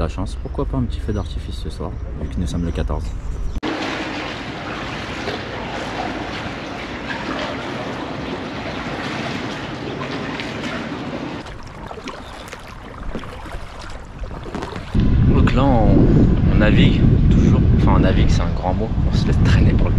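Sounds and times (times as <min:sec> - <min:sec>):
water sloshing around kayak: 0:03.6 - 0:15.0
wind on microphone: 0:11.4 - 0:19.9.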